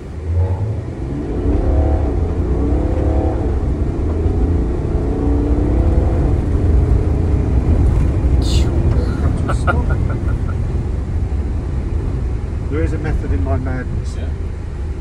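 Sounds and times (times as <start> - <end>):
car engine accelerating: 0.0 - 13.5
tyres rumbling on dirt: 5.8 - 11.0.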